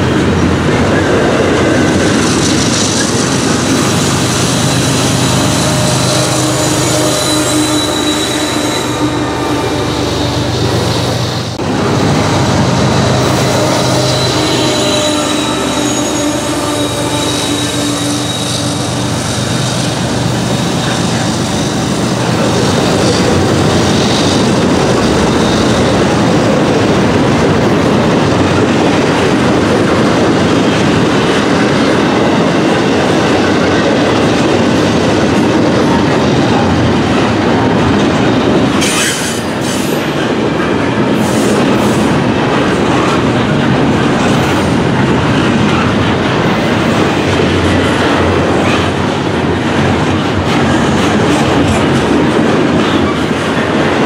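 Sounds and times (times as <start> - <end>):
steel wheels rumbling on rails: 0.0 - 54.0.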